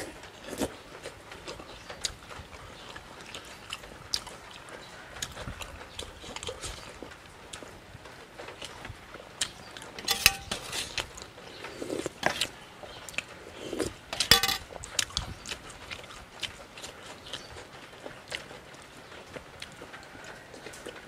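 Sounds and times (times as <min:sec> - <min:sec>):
man chewing and lip-smacking: 0:00.5 - 0:07.7, 0:14.8 - 0:18.9
sharp clinks: 0:10.0 - 0:10.6.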